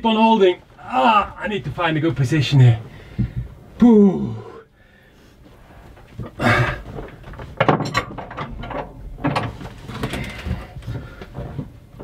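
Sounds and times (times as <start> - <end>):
tools knocking and scraping: 7.0 - 11.7.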